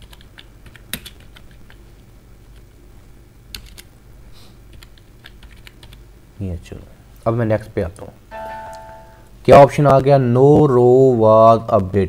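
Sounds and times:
keyboard typing: 0.0 - 1.8, 3.5 - 3.9, 4.7 - 6.0.

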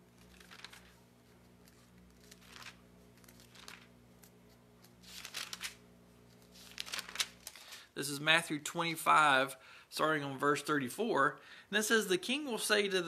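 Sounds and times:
thin pages turning: 0.0 - 7.9
faint electrical hum: 0.0 - 13.0.

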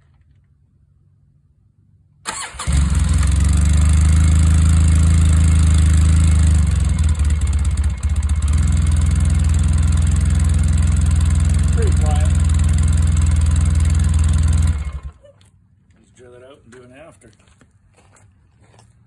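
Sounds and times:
atv engine starting and idling: 2.2 - 15.2.

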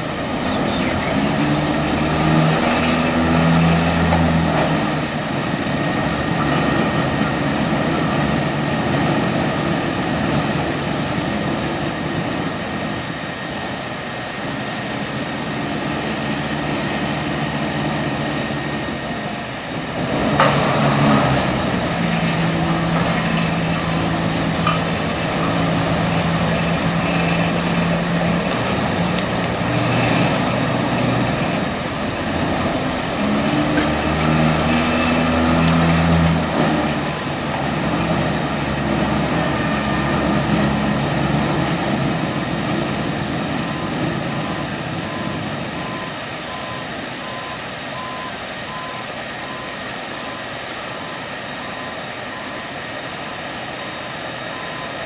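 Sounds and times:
heavy machine engine running: 0.0 - 55.0
backup alarm beeping: 43.7 - 50.4, 54.5 - 55.0.

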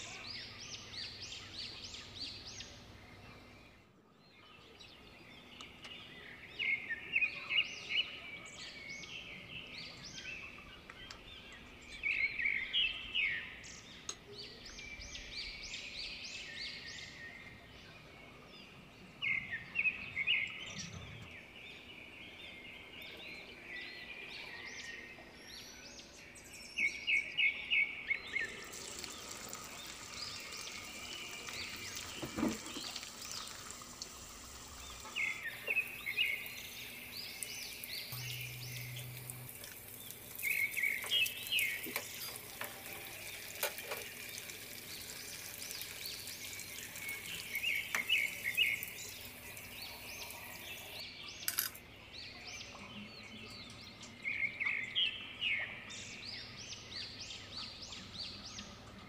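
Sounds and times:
bird chirping: 0.0 - 59.0
food deep-frying in oil: 28.4 - 51.7.

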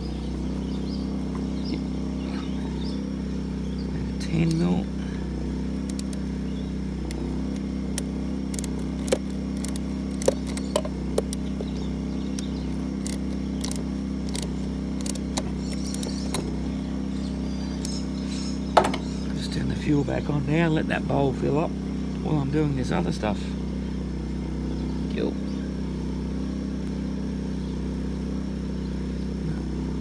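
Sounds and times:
petrol generator running: 0.0 - 30.0
metallic clicks of spanner: 5.8 - 6.2, 12.3 - 16.5.

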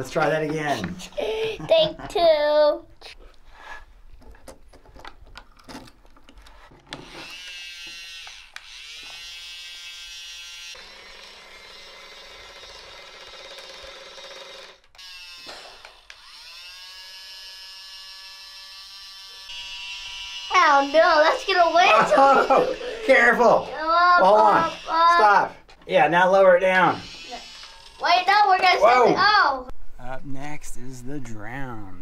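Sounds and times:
small electric motor whining: 6.9 - 25.4, 26.7 - 28.8.

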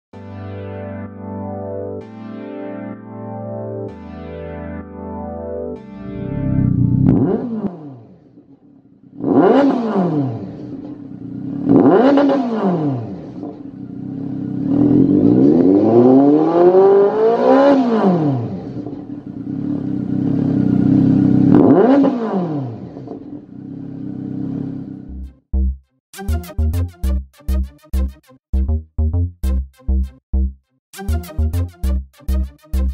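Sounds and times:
motorcycle engine revving: 6.2 - 25.3.

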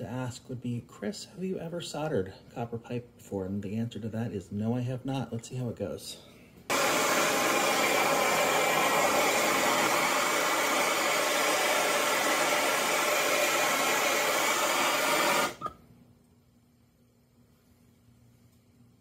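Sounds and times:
gas torch hissing: 6.7 - 15.7.

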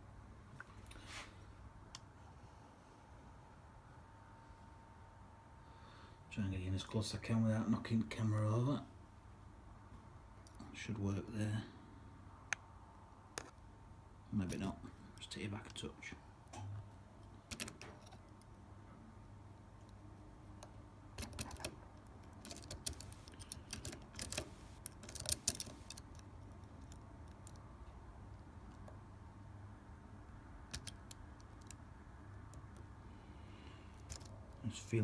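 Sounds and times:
lock pick clicking and scraping: 17.2 - 18.6, 20.6 - 27.7, 30.7 - 32.9, 33.9 - 34.6.

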